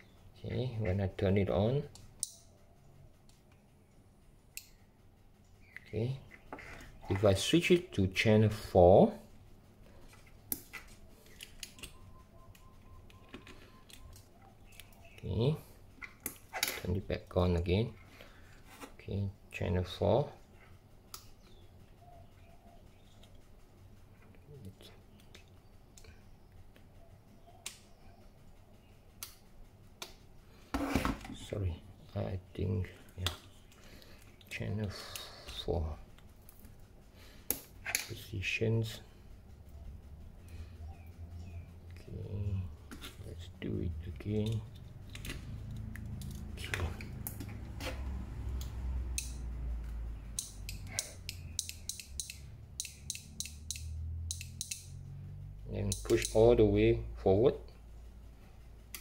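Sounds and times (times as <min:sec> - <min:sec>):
small speaker clicking: 0:48.5 - 0:54.9.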